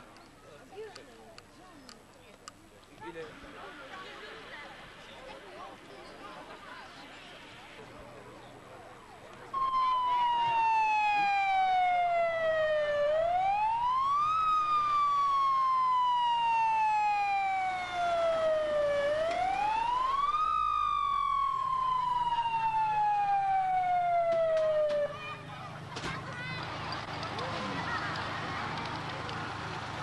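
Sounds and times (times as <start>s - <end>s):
fire engine siren wailing: 9.6s - 25.5s.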